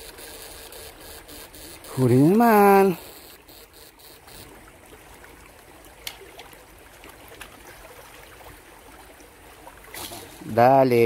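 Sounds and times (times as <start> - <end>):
stream trickling over rocks: 0.0 - 11.0.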